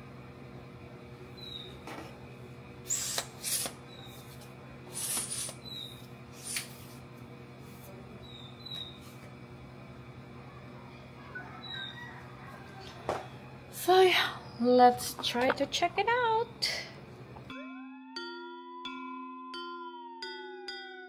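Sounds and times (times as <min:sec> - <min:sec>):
steady low hum: 0:00.0 - 0:17.6.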